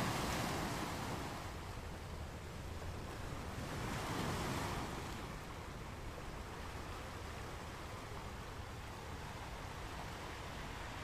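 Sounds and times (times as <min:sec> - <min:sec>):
ocean waves breaking on beach: 0:00.0 - 0:11.0.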